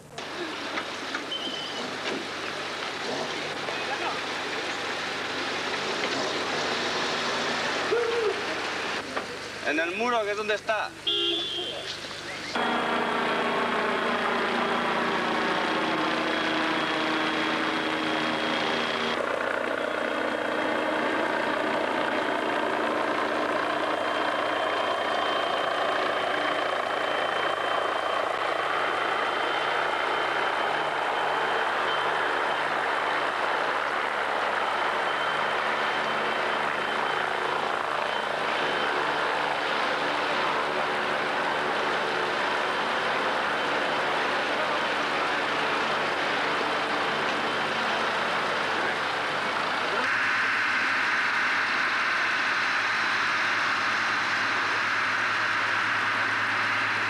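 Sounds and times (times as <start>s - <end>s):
helicopter engine and rotor drone: 0.0s - 9.4s, 12.3s - 57.0s
thin high whine: 21.5s - 57.0s.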